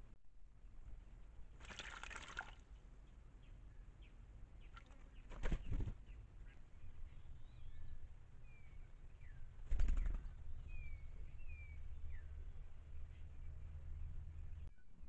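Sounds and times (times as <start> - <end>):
bird splashing in water: 1.5 - 2.7, 4.7 - 5.7.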